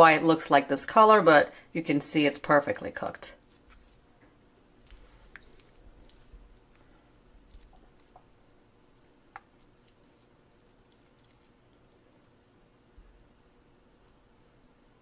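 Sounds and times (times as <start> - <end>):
chicken meat squishing and tearing: 3.4 - 12.6.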